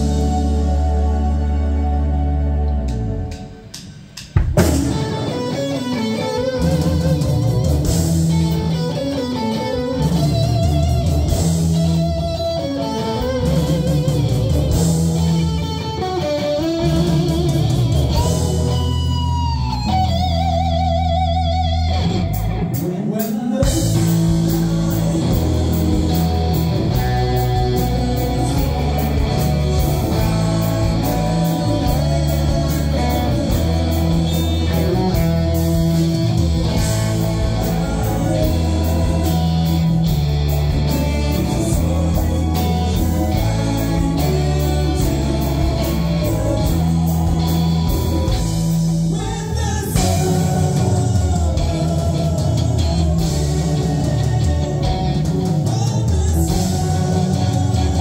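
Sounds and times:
bass guitar: 0.0s - 58.0s
drums: 0.0s - 58.0s
lead guitar melody with vibrato: 4.6s - 22.9s, 23.6s - 49.2s.

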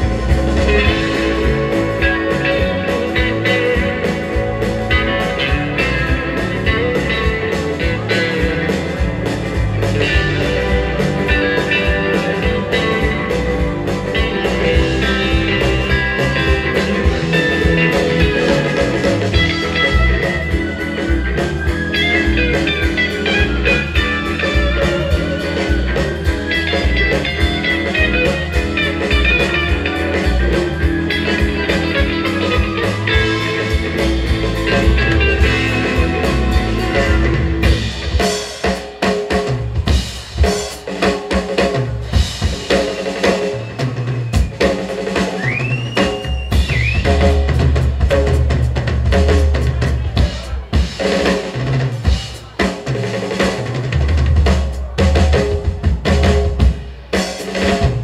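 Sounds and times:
electric guitar lead melody: 0.0s - 40.1s
bass: 0.0s - 58.0s
keyboard: 0.0s - 58.0s
steady drum beat: 0.0s - 58.0s.

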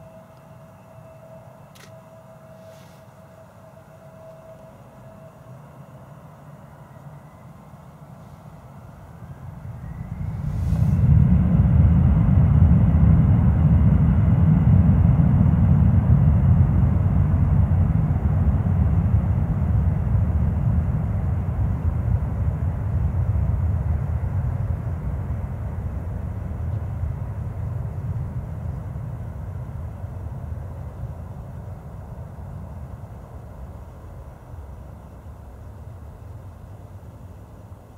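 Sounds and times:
jet engines spooling up: 0.0s - 16.0s.

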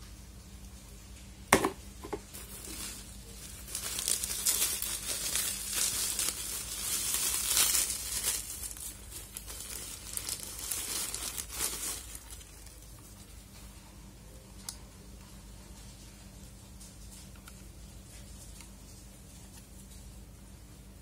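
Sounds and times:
plastic packaging crinkling: 2.1s - 13.4s.

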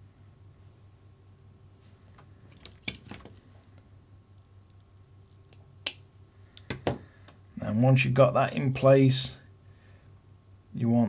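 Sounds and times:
small metal parts clicking: 2.5s - 3.4s.

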